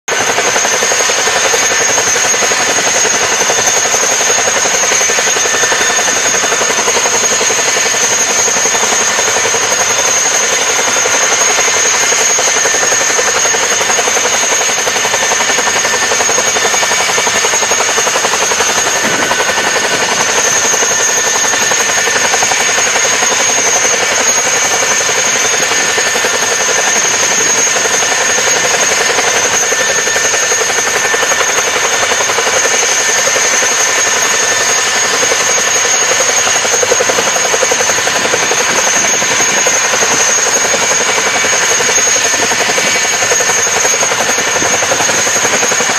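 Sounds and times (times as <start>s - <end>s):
helicopter rotor and engine rush: 0.0s - 45.9s
high turbine whine: 0.1s - 45.9s.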